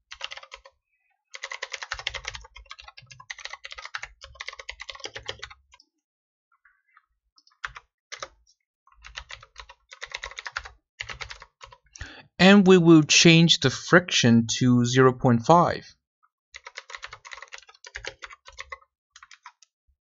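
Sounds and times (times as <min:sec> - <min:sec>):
typing on computer keyboard: 0:00.1 - 0:05.9, 0:07.4 - 0:11.9, 0:16.6 - 0:19.7.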